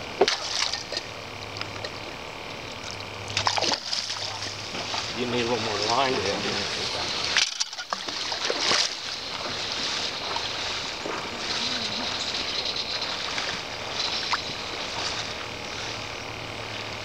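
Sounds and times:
fish thrashing and splashing: 0:00.2 - 0:02.0, 0:02.8 - 0:05.2, 0:07.0 - 0:11.7.

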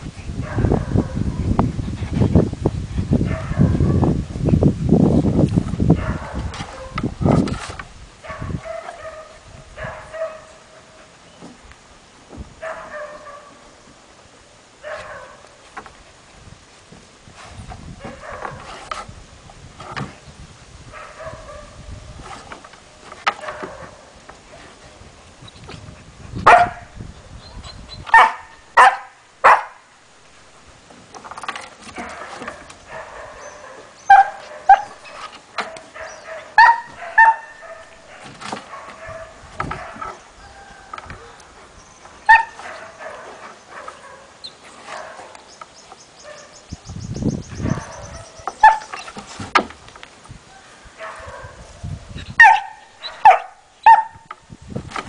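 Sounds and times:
dogs yipping and barking: 0:05.9 - 0:07.4, 0:08.2 - 0:11.1, 0:12.6 - 0:13.6, 0:14.8 - 0:15.4, 0:26.4 - 0:29.8, 0:31.9 - 0:45.5, 0:47.5 - 0:49.2, 0:50.6 - 0:51.7, 0:52.3 - 0:54.3.

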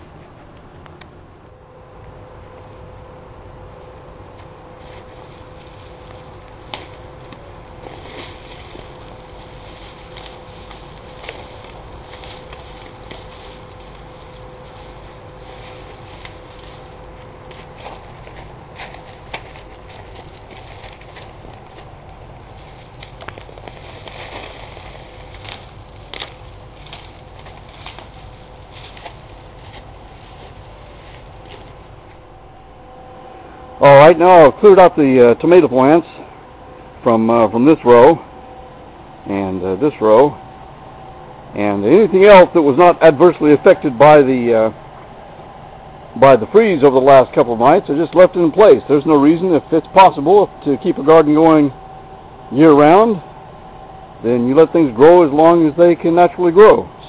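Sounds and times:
steady low rumble: 0:00.0 - 0:57.0
dry vines rustling and snapping: 0:04.3 - 0:32.2.

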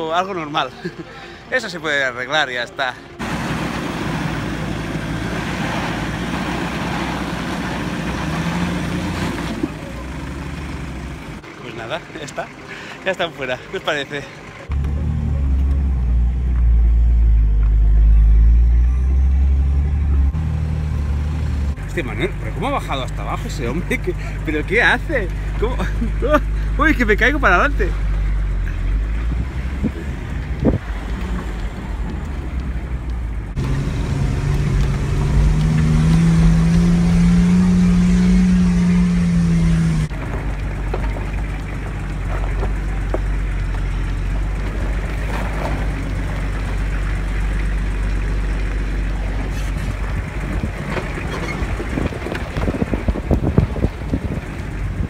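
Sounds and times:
car engine rumbling: 0:00.0 - 0:55.0
knocks and rattles: 0:40.1 - 0:55.0.

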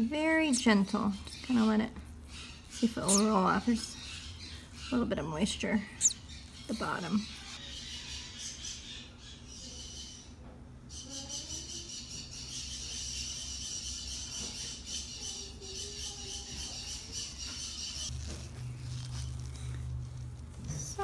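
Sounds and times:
parrots chattering and calling: 0:02.3 - 0:18.1.

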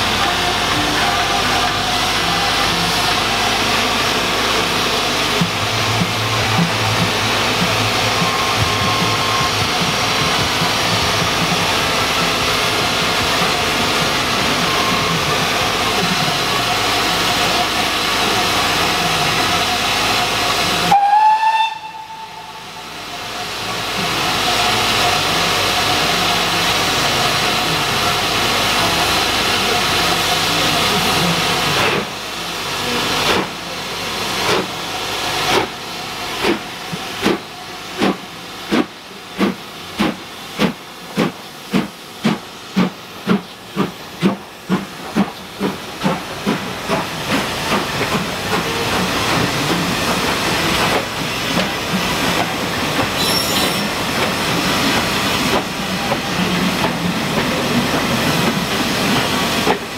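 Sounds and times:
steam hissing: 0:00.0 - 0:59.9
steam whistle blast: 0:20.8 - 0:23.2, 0:53.2 - 0:54.0.

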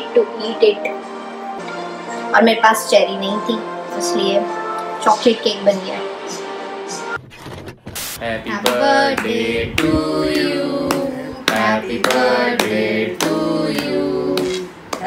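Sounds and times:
voices singing: 0:08.2 - 0:14.8
hands clapping to a beat: 0:08.6 - 0:15.0.

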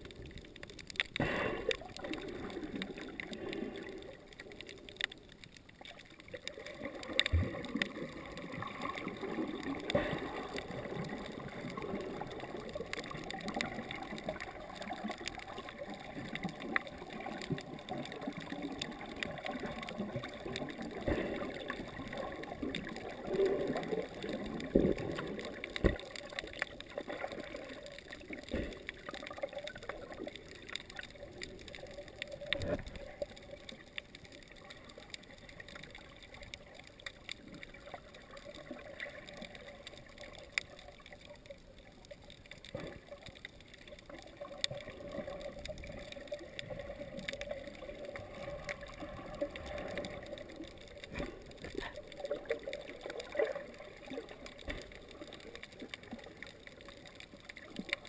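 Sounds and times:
underwater gurgling water: 0:00.0 - 0:58.0.

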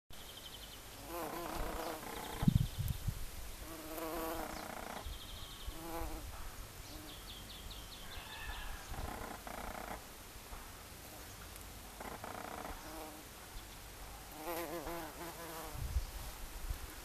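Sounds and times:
bumblebee buzzing: 0:01.0 - 0:02.7, 0:03.6 - 0:05.1, 0:05.7 - 0:06.3, 0:12.0 - 0:13.2, 0:14.4 - 0:15.9.

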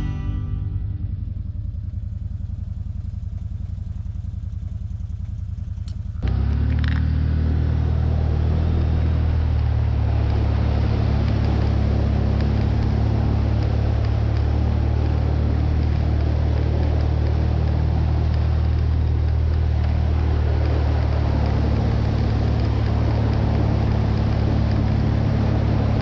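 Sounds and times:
off-road vehicle engine: 0:00.0 - 0:26.0
water spraying off wheels: 0:06.2 - 0:26.0.

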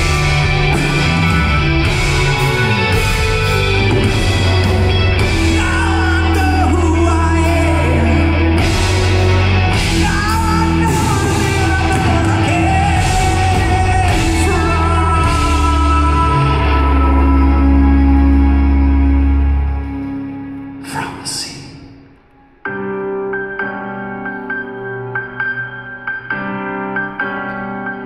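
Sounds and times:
live progressive rock band: 0:00.0 - 0:21.8
person singing: 0:04.0 - 0:19.6.

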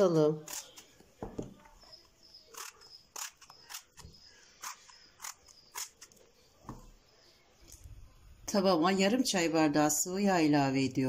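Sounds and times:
knife cutting eggplant: 0:00.0 - 0:06.9.

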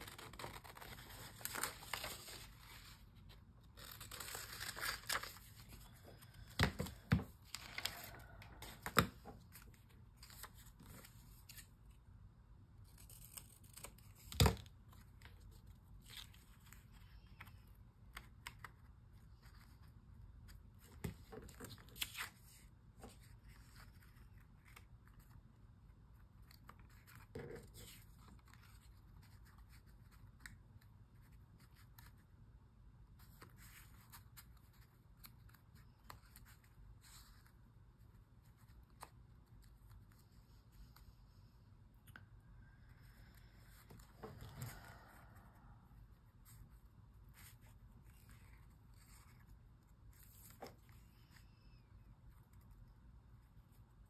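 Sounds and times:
paper rustling and tearing: 0:00.0 - 0:11.7.

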